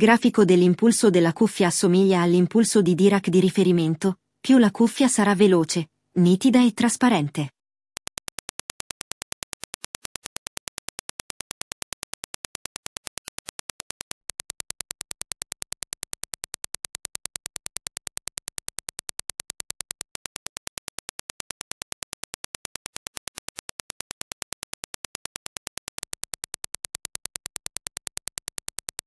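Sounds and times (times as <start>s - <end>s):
rapid train of sharp clicks: 8.0s - 29.0s.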